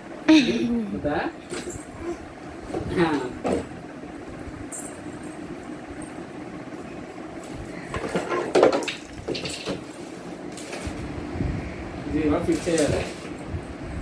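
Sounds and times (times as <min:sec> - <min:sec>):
low hum: 0:00.0 - 0:12.3.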